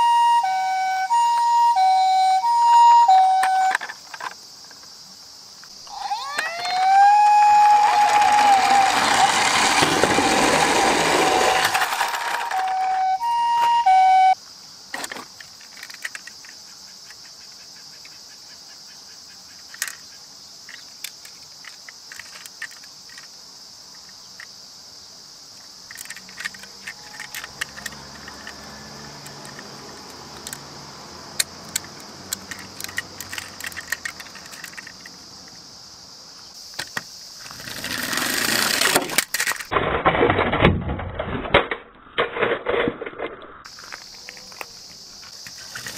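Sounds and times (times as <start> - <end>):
toy electronic siren: 0.0 - 3.8, 5.8 - 14.4, 26.7 - 29.4
faint steady hiss: 3.1 - 6.8, 14.3 - 39.6
clicks of toy vehicles handled: 3.3 - 4.9, 7.5 - 13.7, 14.9 - 17.4, 19.7 - 20.0, 20.7 - 23.3, 25.6 - 30.7, 31.4 - 35.6, 36.7 - 45.9.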